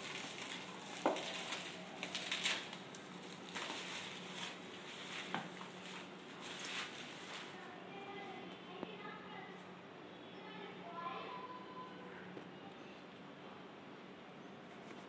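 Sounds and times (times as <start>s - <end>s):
bubble wrap crinkling: 0.0s - 8.3s.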